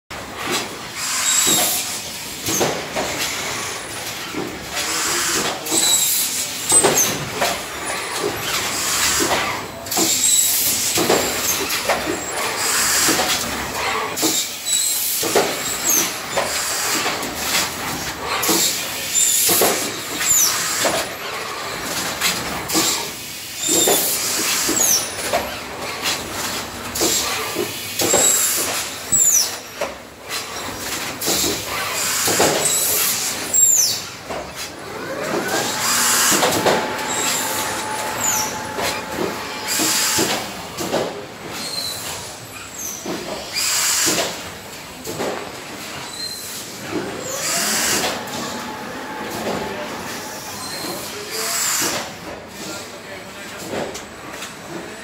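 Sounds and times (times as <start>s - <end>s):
mechanical clatter: 23.7s - 51.2s
short high squeals: 34.9s - 40.5s.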